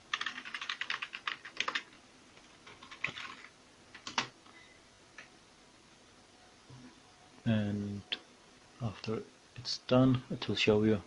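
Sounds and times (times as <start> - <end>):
typing on computer keyboard: 0.1 - 4.3.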